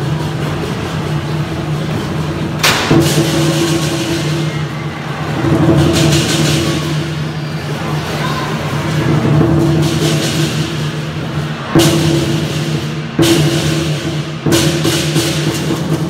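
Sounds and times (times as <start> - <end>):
cymbal crash: 0.0 - 16.0
war drums rolling: 0.0 - 16.0.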